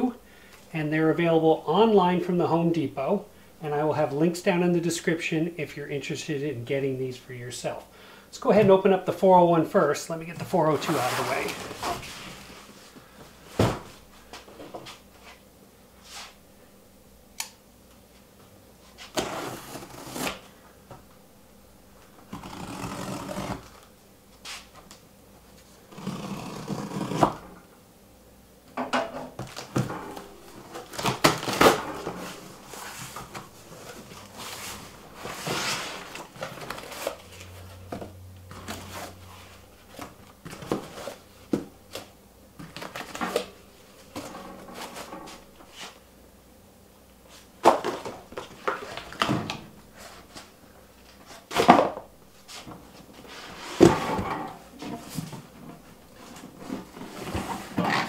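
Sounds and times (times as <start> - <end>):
cardboard box being unpacked: 22.3 - 23.8, 29.4 - 37.7.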